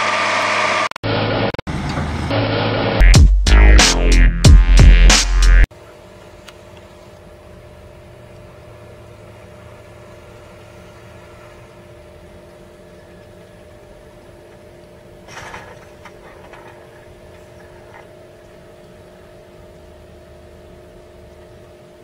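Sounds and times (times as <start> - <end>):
truck engines droning: 0.0 - 3.0, 7.6 - 18.8.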